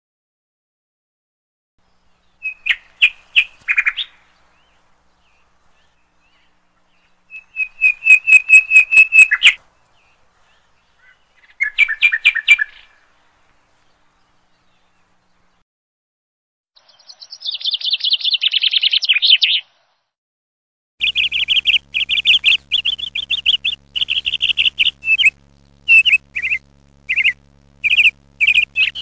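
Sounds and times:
bird chirping: 1.8s - 13.0s, 16.8s - 19.8s, 21.0s - 29.0s.

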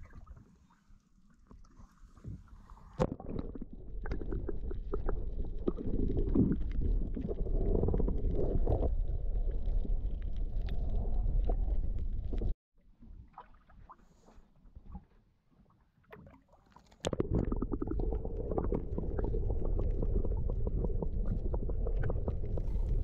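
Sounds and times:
muffled underwater rumble: 1.7s - 15.1s, 17.1s - 23.0s
bubbling crackles: 3.1s - 12.6s, 17.0s - 23.0s.

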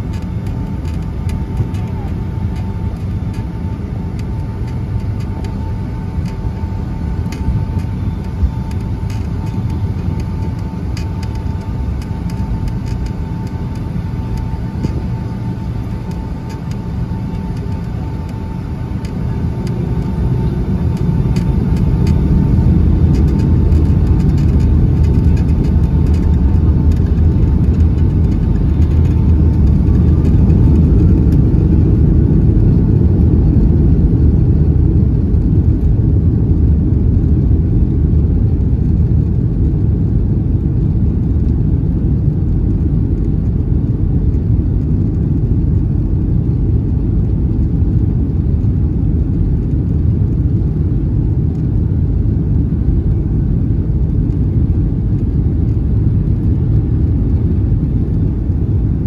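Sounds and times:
airplane engines rumbling: 0.0s - 59.0s.

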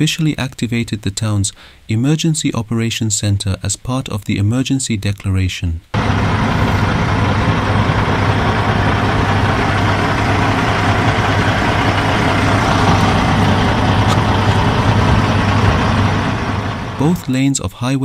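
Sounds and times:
truck engine idling: 6.0s - 17.2s.

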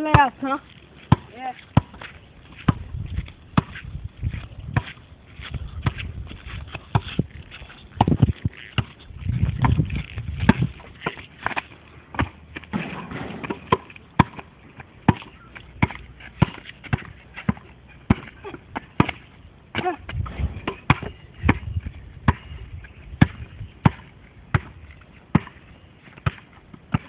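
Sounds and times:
basketball bouncing: 1.1s - 2.0s, 3.6s - 3.8s, 8.0s - 22.5s, 23.2s - 25.6s, 26.2s - 27.0s.

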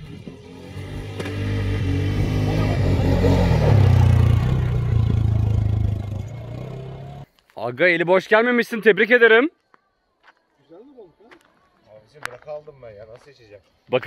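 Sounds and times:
vehicle engine running: 0.1s - 7.2s.

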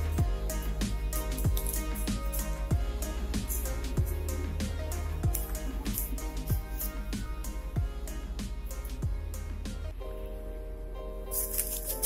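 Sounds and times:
electronic music with steady beat: 0.0s - 12.0s
deep bass drum hits: 0.2s - 1.6s, 2.7s - 5.6s, 6.4s - 9.3s.

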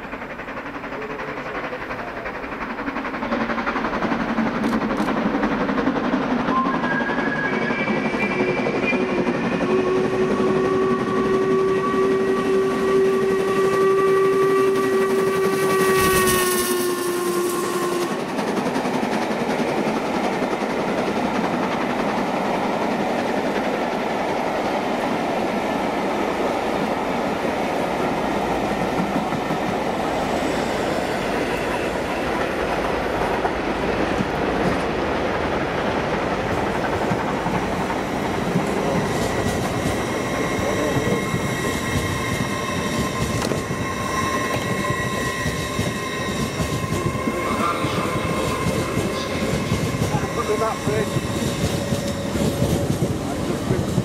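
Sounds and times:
train coaches rumbling on rails: 0.0s - 54.0s
steam locomotive whistle: 6.5s - 18.4s, 38.6s - 53.1s.

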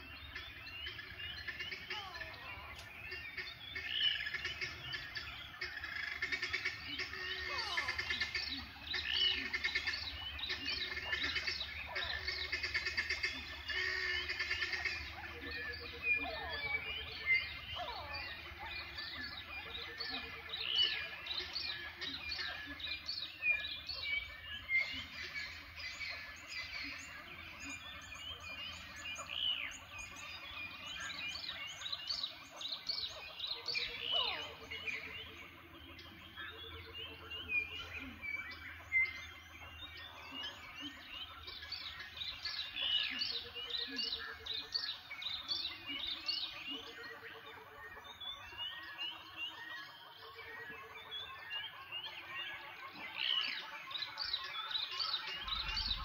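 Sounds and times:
birds chirping in chorus: 0.0s - 56.0s
sweeping bird whistles: 55.3s - 56.0s
low pulsed trill: 55.4s - 56.0s.

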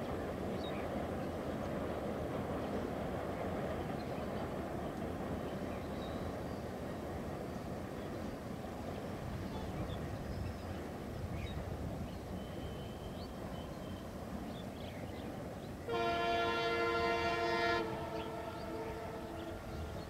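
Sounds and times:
moving train rumble: 0.0s - 20.0s
locomotive air horn blast: 15.9s - 19.9s.

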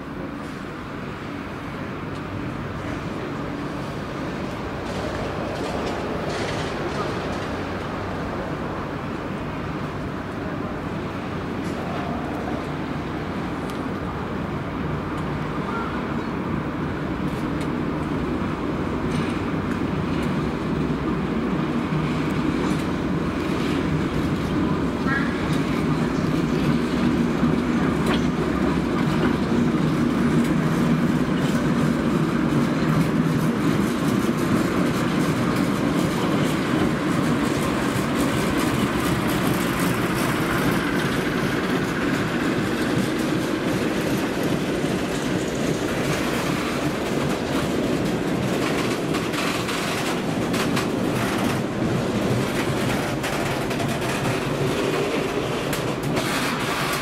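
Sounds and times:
diesel locomotive engine running: 0.0s - 57.0s
wagon wheels clattering over rail joints: 4.8s - 7.6s, 22.5s - 57.0s.

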